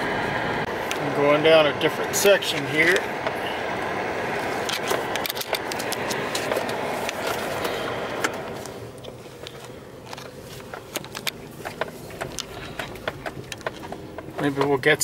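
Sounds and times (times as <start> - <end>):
vehicle engine and tyre noise: 0.0 - 15.0
clicks and rattles in cab: 4.6 - 15.0.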